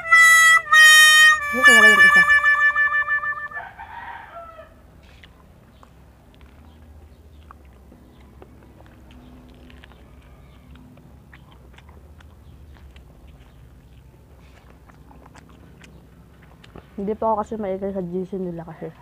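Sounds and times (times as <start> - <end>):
short falling call: 0.0 - 3.7
chewing corn kernels: 5.0 - 17.2.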